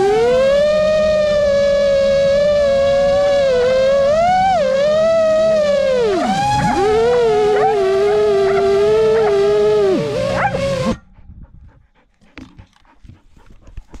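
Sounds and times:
drone motors whining: 0:00.0 - 0:11.1
faint clicks and rustles: 0:12.1 - 0:14.0.

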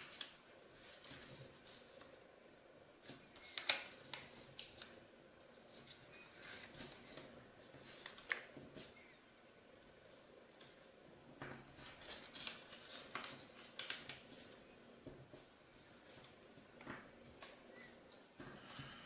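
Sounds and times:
paper rustling and crinkling: 0:00.0 - 0:02.2, 0:05.7 - 0:09.0, 0:11.6 - 0:14.6.

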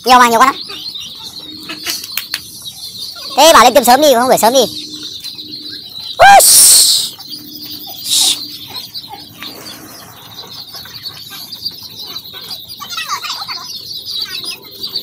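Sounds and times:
ducklings peeping: 0:00.0 - 0:15.0.

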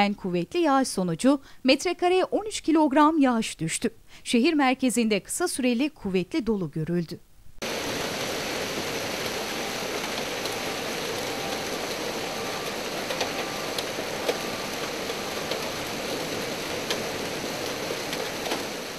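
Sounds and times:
heavy rain hiss: 0:07.6 - 0:18.9
hailstones striking hard surfaces: 0:07.7 - 0:18.9.

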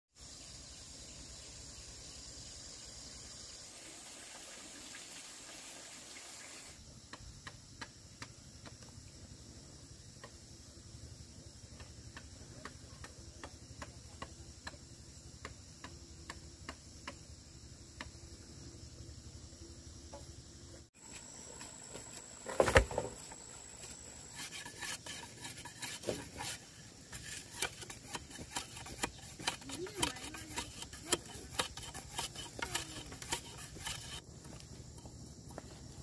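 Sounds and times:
light rain hissing: 0:00.2 - 0:06.8
hand tools striking soil: 0:21.0 - 0:35.6.

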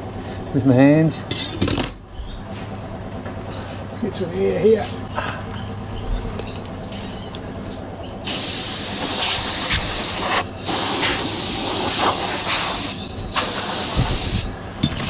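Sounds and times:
compressed air blow gun hissing: 0:08.2 - 0:14.6.

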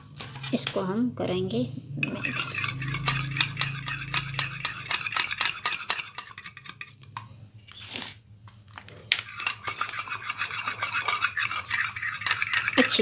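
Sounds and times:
fork beating egg in bowl: 0:02.0 - 0:07.4, 0:09.2 - 0:13.0.

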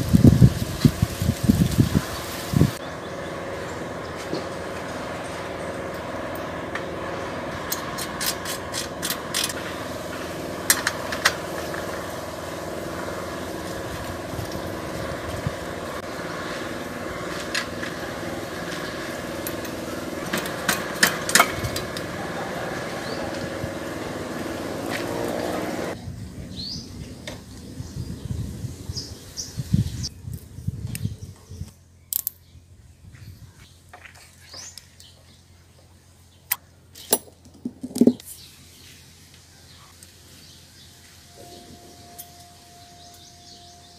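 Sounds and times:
steady mechanical hum: 0:00.0 - 0:43.9
metallic clicks of bicycle parts: 0:32.1 - 0:32.4.

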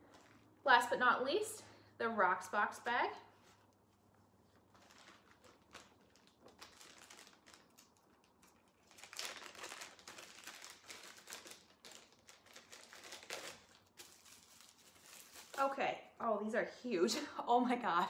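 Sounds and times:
jewelry bag crinkling: 0:04.7 - 0:15.7.

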